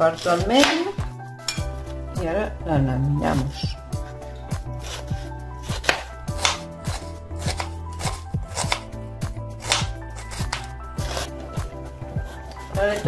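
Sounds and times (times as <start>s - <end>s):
knife slicing onion on board: 0.1s - 1.1s, 4.7s - 13.0s.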